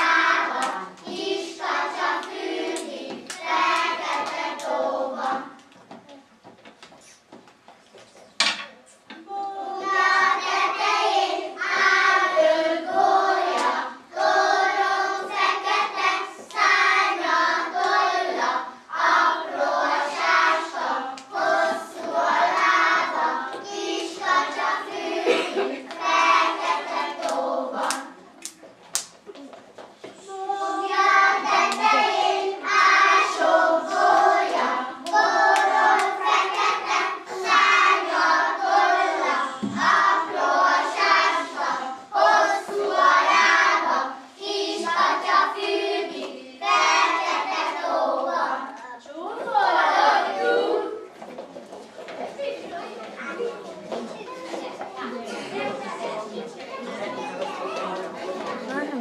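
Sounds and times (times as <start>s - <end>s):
children singing: 0.0s - 5.6s, 9.1s - 28.2s, 30.2s - 48.8s, 49.4s - 51.2s
hand claps: 27.2s - 29.2s.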